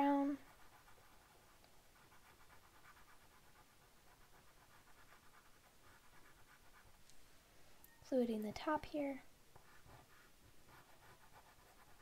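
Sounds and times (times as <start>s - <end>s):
chalk pastel scratching paper: 0.0s - 7.0s, 9.5s - 12.0s.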